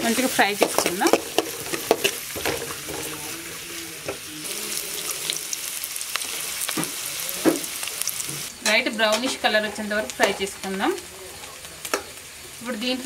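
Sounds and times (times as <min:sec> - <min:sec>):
onions sizzling in hot oil: 0:00.0 - 0:13.0
spatula scraping and tapping pan: 0:00.5 - 0:03.4.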